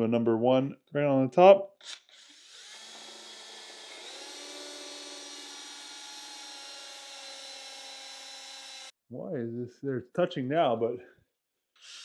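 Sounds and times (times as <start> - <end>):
power drill boring into wood: 1.8 - 8.9, 11.8 - 12.0.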